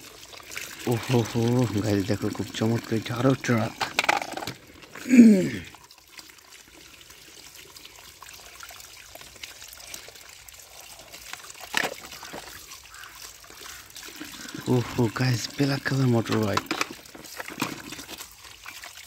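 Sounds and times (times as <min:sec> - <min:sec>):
tap water trickling and splashing: 0:00.0 - 0:19.0
person exclaiming: 0:05.0 - 0:05.7.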